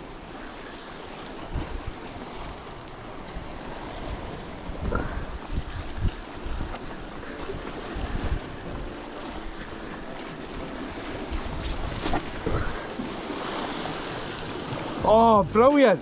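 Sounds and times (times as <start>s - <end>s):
surf washing against rocks: 0.0s - 16.0s
wind buffeting microphone: 1.1s - 16.0s.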